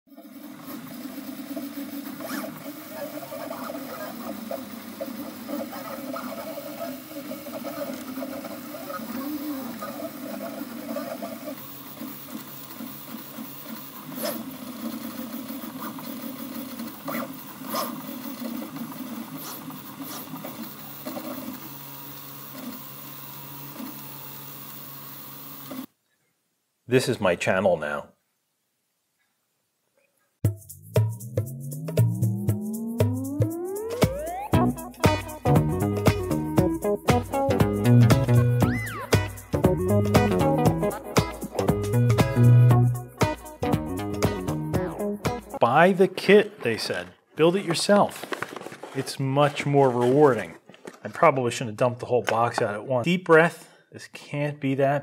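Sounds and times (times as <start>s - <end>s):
stepper motors whirring: 0.1s - 25.9s, 32.2s - 36.9s.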